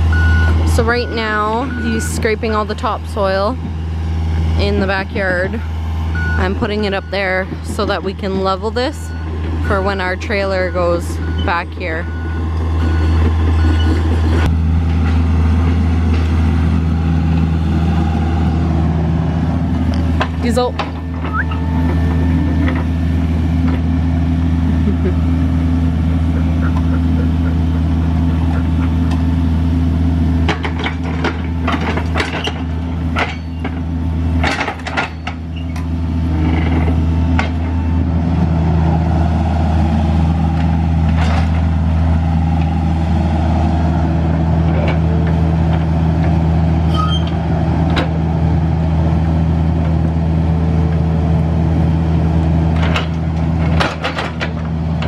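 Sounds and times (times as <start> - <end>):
excavator diesel engine running: 0.0 - 55.0
sharp metal clanks and knocks: 34.4 - 35.4.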